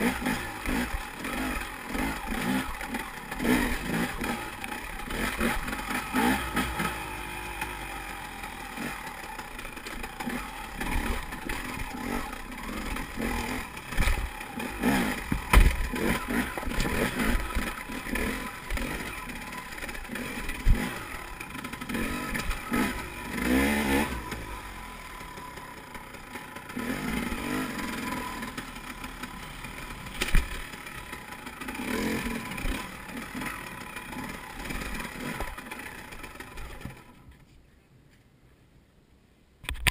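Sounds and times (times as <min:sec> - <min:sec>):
motorbike engine revving: 0:00.0 - 0:37.2
sharp knocks and clatter: 0:15.3 - 0:17.7.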